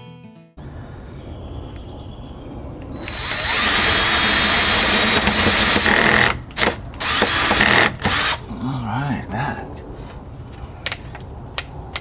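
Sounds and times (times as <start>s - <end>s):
cordless drill boring into wood: 3.0s - 8.4s.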